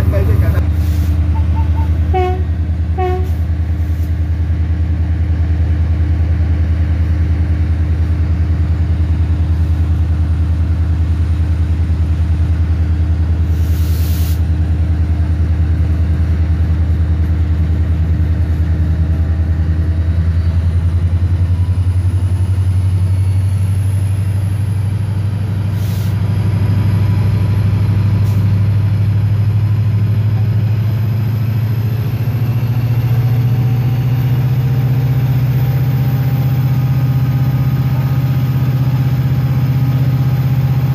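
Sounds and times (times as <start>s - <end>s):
locomotive engine droning: 0.0s - 40.9s.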